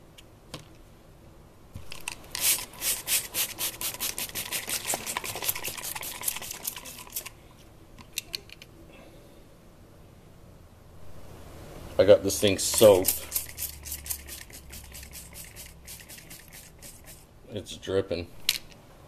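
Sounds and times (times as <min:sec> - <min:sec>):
spray bottle squirting: 0:01.8 - 0:07.3, 0:12.7 - 0:17.3.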